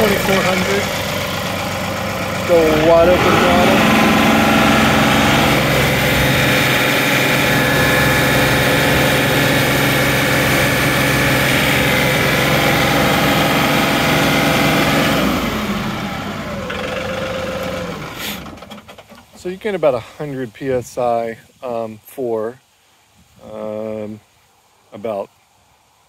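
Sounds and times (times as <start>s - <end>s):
diesel engine running: 0.0s - 19.0s.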